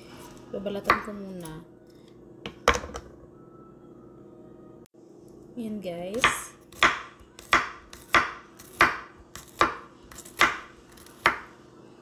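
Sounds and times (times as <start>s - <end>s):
knife striking cutting board: 6.2s - 11.5s.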